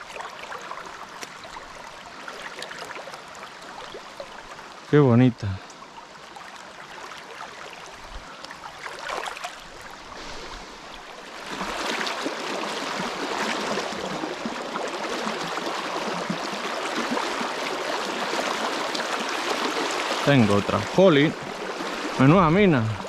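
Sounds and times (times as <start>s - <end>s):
river rushing over stones: 8.7s - 23.0s.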